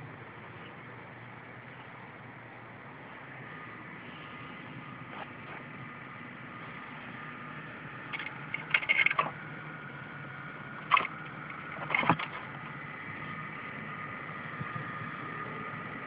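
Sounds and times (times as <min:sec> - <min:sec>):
electrical buzz with high whine: 0:00.0 - 0:16.0
rattling crackle: 0:08.0 - 0:09.4, 0:10.8 - 0:12.7.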